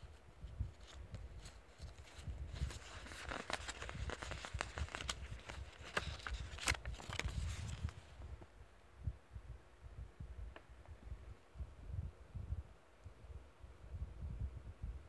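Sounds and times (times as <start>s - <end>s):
paper rustling and crinkling: 0.5s - 8.2s.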